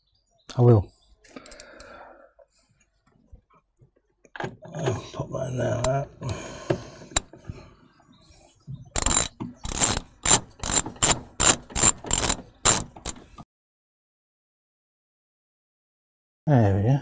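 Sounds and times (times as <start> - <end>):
socket ratchet clicking: 9.0 - 13.4.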